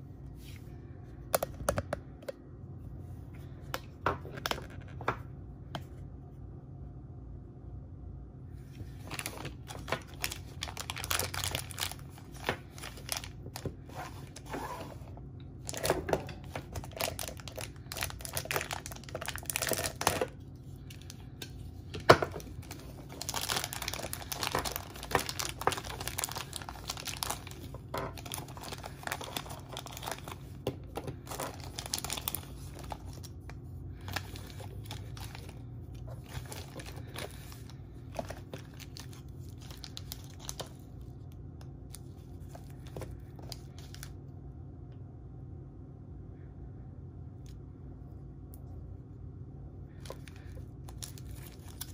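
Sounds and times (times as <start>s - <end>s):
plastic bags crinkling and tearing: 9.0s - 14.5s, 15.6s - 21.3s, 21.9s - 40.9s, 50.0s - 51.9s.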